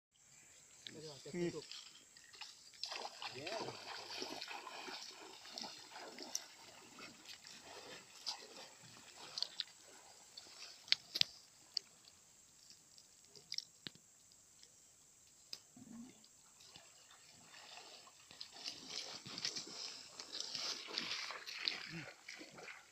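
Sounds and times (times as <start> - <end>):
footsteps splashing through water: 1.6 - 11.5, 16.7 - 22.9.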